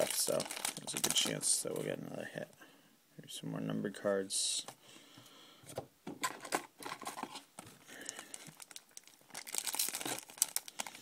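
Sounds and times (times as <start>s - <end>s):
card pack wrapper crinkling: 0.0s - 1.8s, 8.0s - 11.0s.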